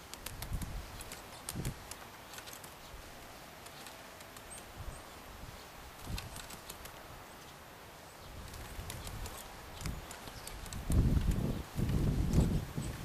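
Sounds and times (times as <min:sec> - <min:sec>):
woodpecker tapping: 0:06.0 - 0:07.1, 0:08.4 - 0:11.6.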